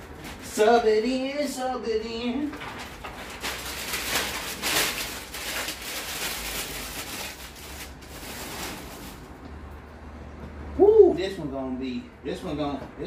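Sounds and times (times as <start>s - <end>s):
paper sheets rustling: 2.4s - 9.3s.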